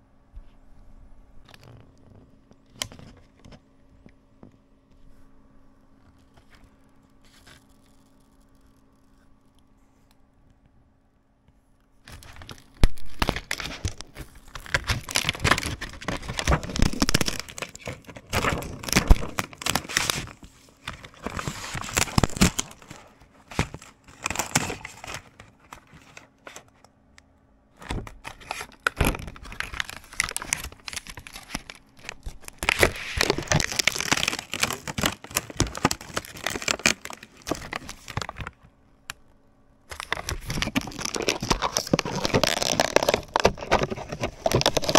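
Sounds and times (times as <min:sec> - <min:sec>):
plastic sheets crinkling and tearing: 0:12.0 - 0:26.8, 0:27.8 - 0:38.6, 0:39.9 - 0:44.9.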